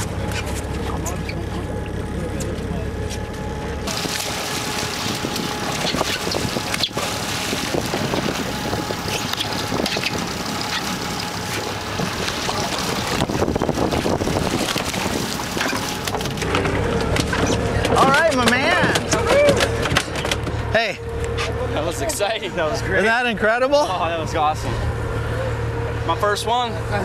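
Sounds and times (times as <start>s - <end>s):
boat engine noise: 0.0s - 27.0s
fish thrashing at surface: 3.9s - 17.5s
water washing and splashing: 3.9s - 20.0s
wind buffeting microphone: 4.8s - 10.6s, 11.5s - 15.7s.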